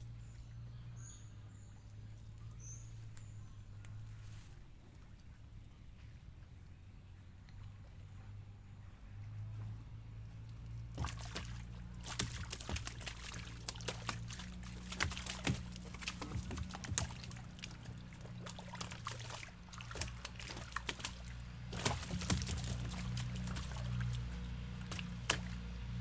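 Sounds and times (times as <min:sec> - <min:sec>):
water splashing and dripping: 0:10.7 - 0:26.0
fish flopping against hull: 0:11.0 - 0:25.7.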